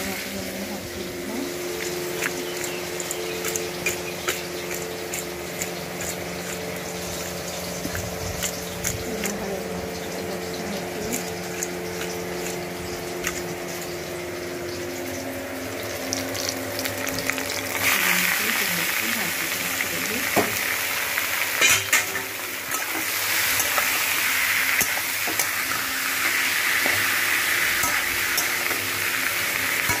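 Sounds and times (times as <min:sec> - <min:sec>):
machine humming: 0:00.0 - 0:30.0.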